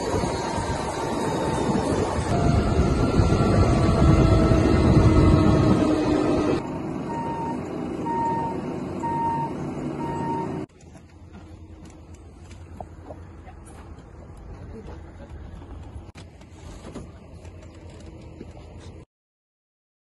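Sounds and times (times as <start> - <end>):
high electronic warning beeps: 7.1 - 10.7.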